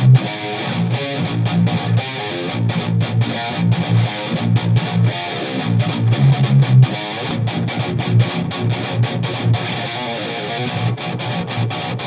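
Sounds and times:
distorted electric guitar riff: 0:00.0 - 0:12.0.

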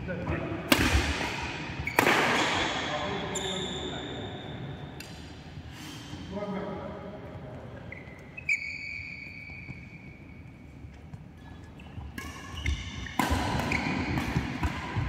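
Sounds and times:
racket hitting shuttlecock: 0:00.7 - 0:02.8, 0:12.1 - 0:15.0
shoes squeaking on court: 0:03.0 - 0:04.6, 0:07.7 - 0:15.0.

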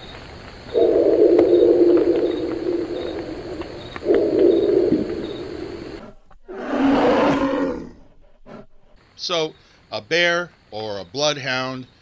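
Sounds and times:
crickets chirping: 0:00.0 - 0:06.3, 0:09.0 - 0:12.0
bear calling: 0:00.7 - 0:06.0.

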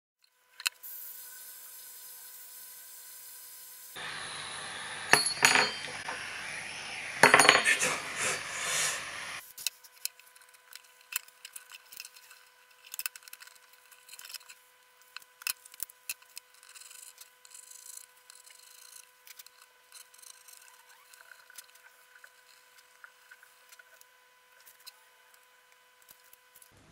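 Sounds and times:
hiss: 0:00.8 - 0:09.4.

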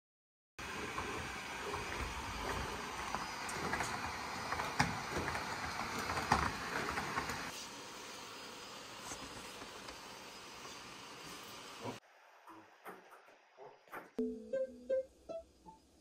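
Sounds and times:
robot motors whirring: 0:00.7 - 0:07.6.

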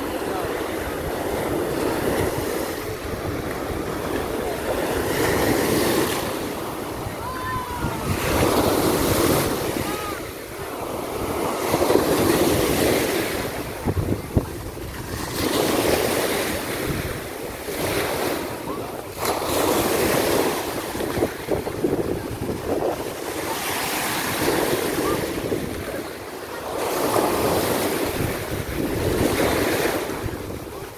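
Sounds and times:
wind buffeting microphone: 0:00.0 - 0:10.5, 0:11.2 - 0:16.0, 0:18.8 - 0:23.5, 0:27.2 - 0:30.9
small waves breaking on shore: 0:00.0 - 0:30.9.

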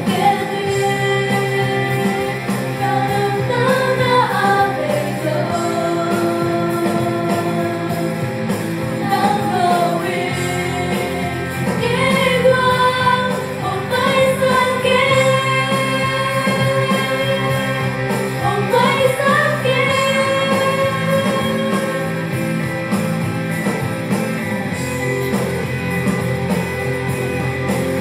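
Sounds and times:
women singing together: 0:00.0 - 0:22.2
instrumental backing: 0:00.0 - 0:28.0.

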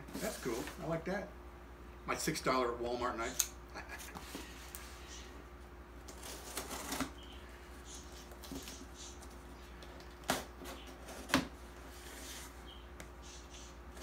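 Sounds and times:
tape and cardboard rustling: 0:00.0 - 0:01.0, 0:06.0 - 0:12.7.

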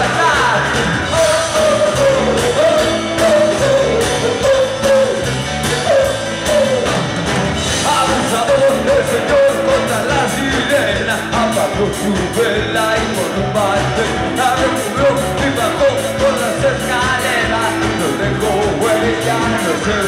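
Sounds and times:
bending guitar melody line: 0:00.0 - 0:20.0
live rock band playing: 0:00.0 - 0:20.0.

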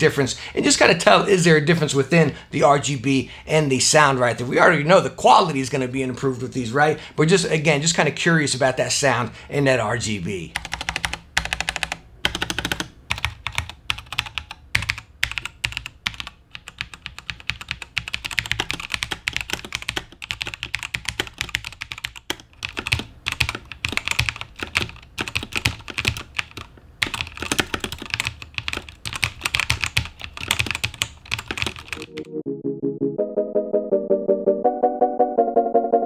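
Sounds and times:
mechanical keyboard typing: 0:10.6 - 0:32.3.

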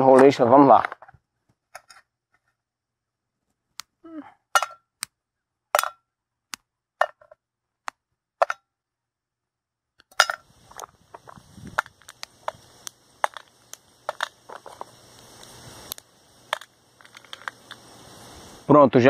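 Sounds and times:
wax candles snapping: 0:10.7 - 0:17.9.

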